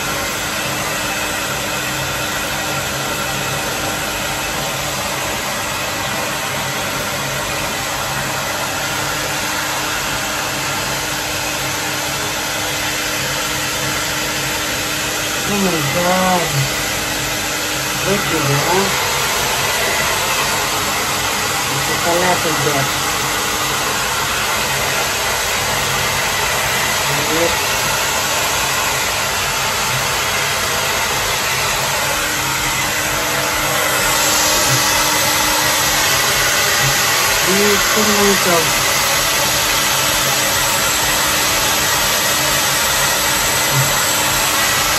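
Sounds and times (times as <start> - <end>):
hair dryer blowing: 0.0 - 44.9.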